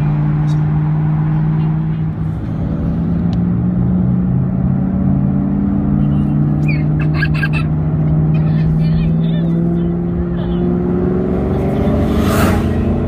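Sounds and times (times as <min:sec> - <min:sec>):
car engine drone: 0:00.0 - 0:13.0
road noise: 0:00.0 - 0:13.0.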